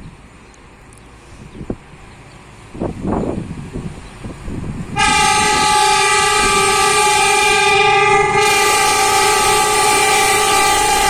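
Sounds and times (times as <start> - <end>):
locomotive air horn blast: 5.0 - 11.0.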